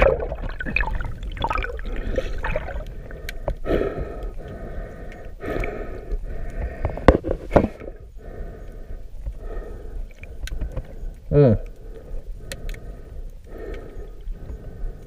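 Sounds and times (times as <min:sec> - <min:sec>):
muffled underwater rushing water: 0:00.0 - 0:11.2.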